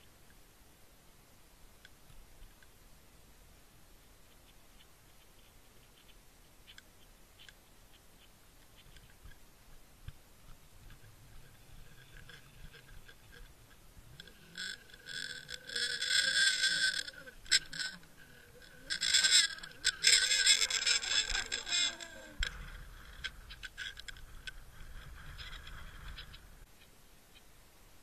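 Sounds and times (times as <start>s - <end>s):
faint ticking: 4.0s - 27.5s
rough scraping and rattling: 11.5s - 26.4s.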